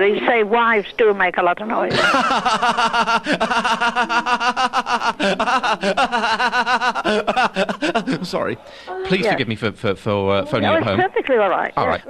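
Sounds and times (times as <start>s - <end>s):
person laughing: 1.9s - 8.4s.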